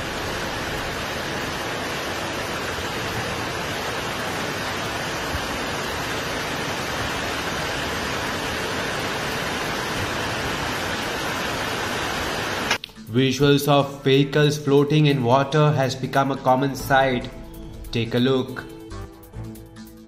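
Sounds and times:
floodwater rushing: 0.0 - 12.8.

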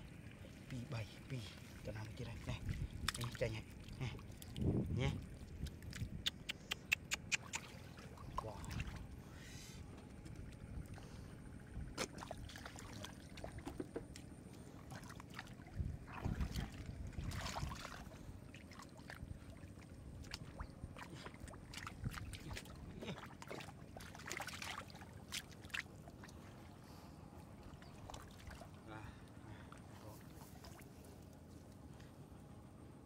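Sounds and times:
squelches of mud: 0.0 - 32.9
hands splashing in muddy water: 14.9 - 19.2, 20.2 - 26.4.

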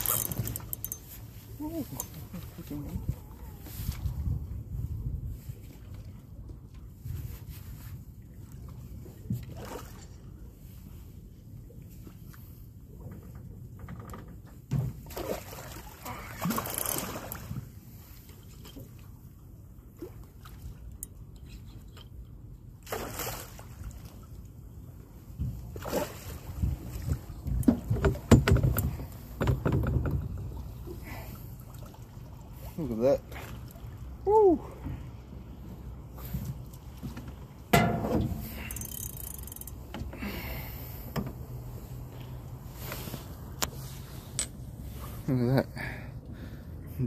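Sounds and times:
water lapping against boat hull: 0.0 - 47.0
water splash: 22.8 - 24.0
low steady rumble: 23.6 - 47.0.

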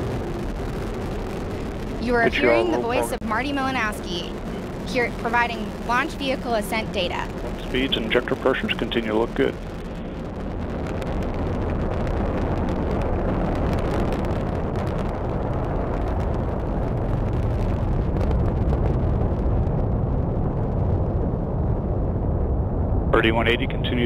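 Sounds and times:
rocket engine rumbling: 0.0 - 24.0.

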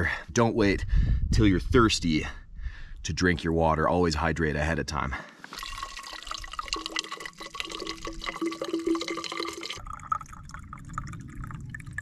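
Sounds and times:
water trickling and gurgling through filter: 5.5 - 12.0
low rumble: 9.8 - 12.0.

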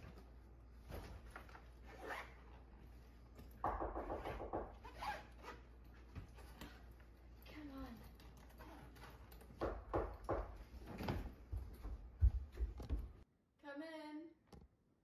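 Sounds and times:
rustling of items being packed: 0.0 - 3.6
bag zipper closing: 1.8 - 2.4, 4.8 - 5.6.

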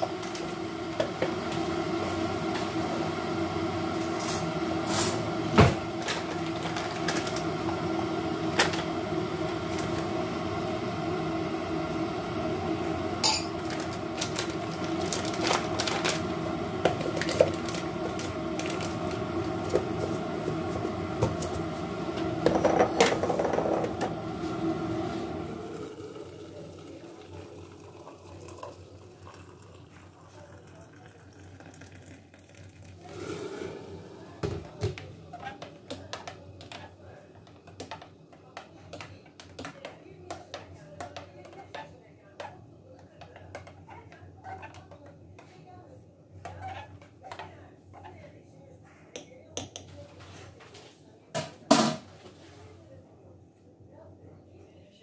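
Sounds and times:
appliance hum: 0.0 - 55.0
glass mug set on counter: 13.2 - 13.8, 22.4 - 24.1, 26.7 - 36.9
kitchen clatter: 13.2 - 20.2, 22.4 - 24.1, 51.3 - 52.4
foil sachet tearing: 13.6 - 16.3, 17.0 - 19.2.

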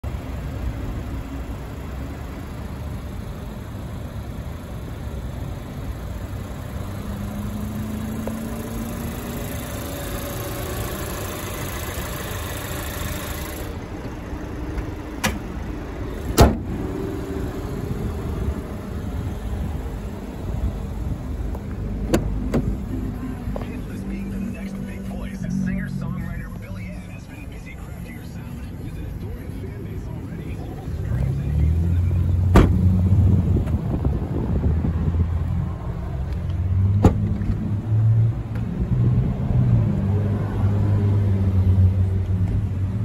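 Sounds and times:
low rumble of vehicle noise: 0.0 - 43.0
loud thump: 16.4 - 16.7, 22.1 - 22.8, 32.5 - 32.9.

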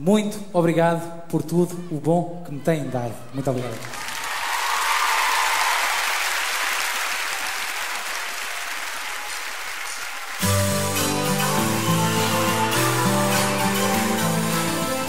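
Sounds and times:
audience applauding: 3.4 - 15.0
band music: 10.4 - 15.0.

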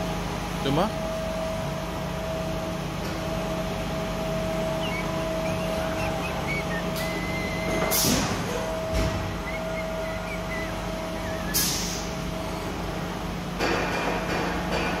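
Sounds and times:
machine hum: 1.1 - 14.6
servo whines: 4.4 - 12.8
sharp pneumatic hiss: 7.7 - 9.4, 11.4 - 12.8.

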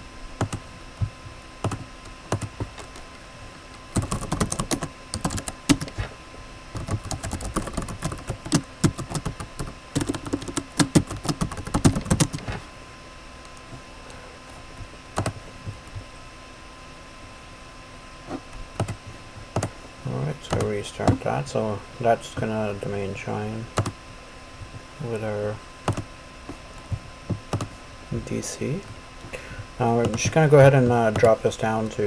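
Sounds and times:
typing on computer keyboard: 1.6 - 2.9, 4.0 - 5.9, 6.8 - 12.5, 15.2 - 15.4, 18.8 - 19.0.

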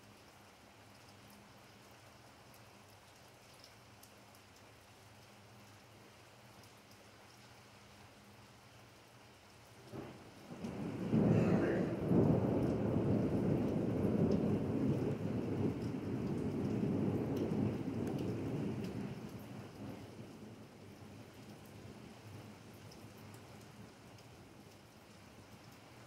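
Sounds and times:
steady rain: 0.0 - 26.0
thunder rolling: 9.8 - 20.2.

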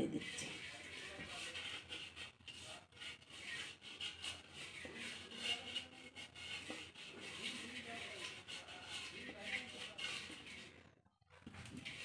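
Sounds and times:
hand scraping on clay pot: 0.0 - 12.0.

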